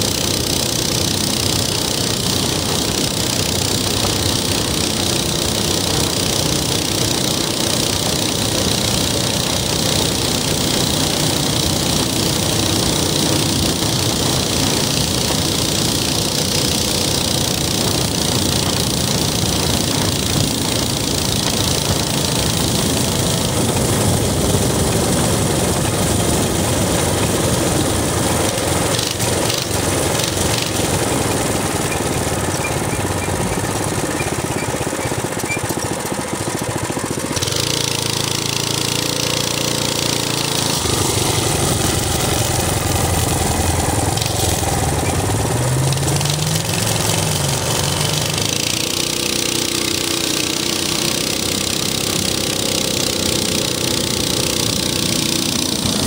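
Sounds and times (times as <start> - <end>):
minibike engine running: 0.0 - 56.0.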